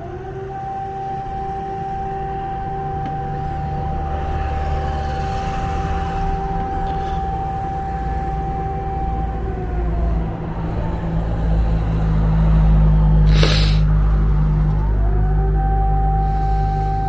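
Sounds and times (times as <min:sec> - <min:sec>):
air-raid siren wailing: 0:00.0 - 0:17.0
low steady drone: 0:00.0 - 0:17.0
short hissing burst: 0:13.3 - 0:13.8.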